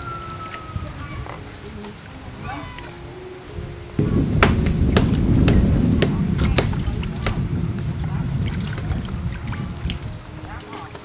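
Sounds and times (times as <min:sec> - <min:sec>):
low rough rumble: 0:03.6 - 0:10.6.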